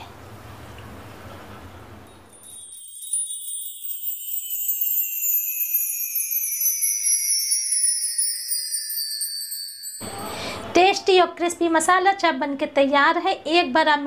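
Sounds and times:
shimmering bell-like tones gliding down: 2.3s - 10.8s.

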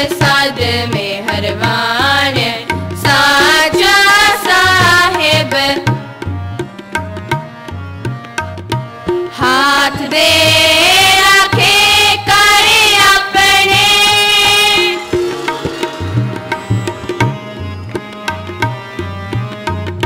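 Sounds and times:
children singing in unison: 0.0s - 5.8s, 9.6s - 17.7s
harmonium: 0.0s - 20.0s
tabla drumming: 0.0s - 20.0s.

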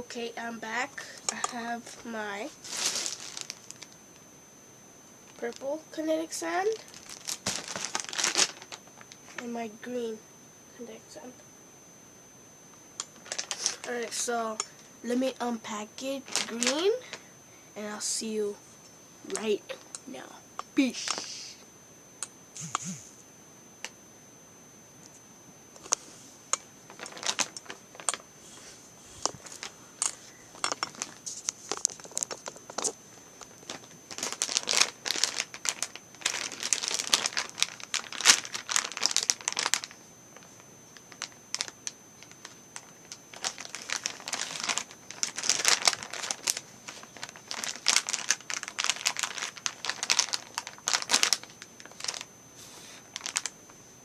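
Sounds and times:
packaging crinkling and tearing: 2.6s - 4.0s, 6.6s - 9.2s, 13.1s - 13.9s, 16.2s - 17.1s, 26.9s - 28.2s, 30.6s - 40.5s, 41.1s - 52.3s, 53.1s - 53.5s.

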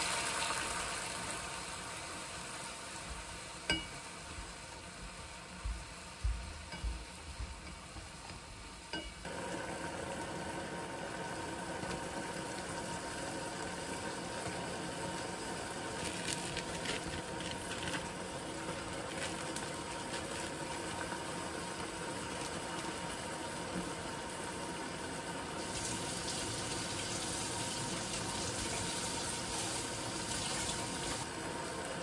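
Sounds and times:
meat sizzling and bubbling: 0.0s - 32.0s
tongs knocking against pot: 3.7s - 4.0s.

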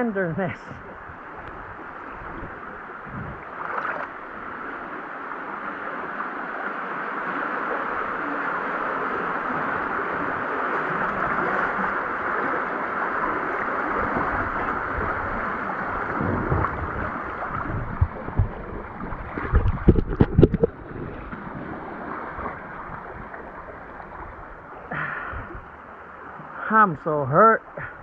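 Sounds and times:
creek water rushing: 0.0s - 28.0s
low thumps and splashes: 0.6s - 4.7s, 9.6s - 26.6s.

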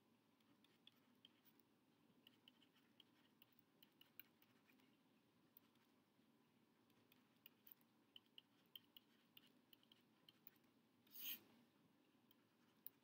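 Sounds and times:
stylus scratching stroke: 6.9s - 11.6s.

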